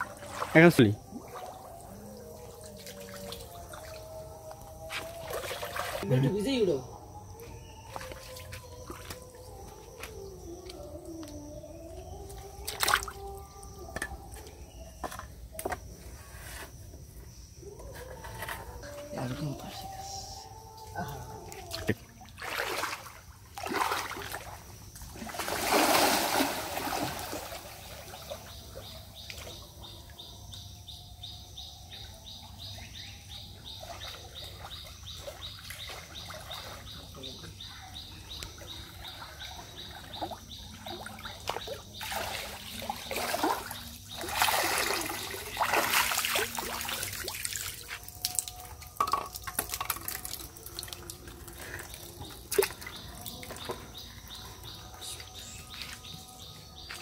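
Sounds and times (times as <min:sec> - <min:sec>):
splashing in shallow water: 0:04.9 - 0:06.1, 0:12.5 - 0:13.3, 0:21.4 - 0:29.6, 0:33.7 - 0:37.7, 0:38.5 - 0:54.4.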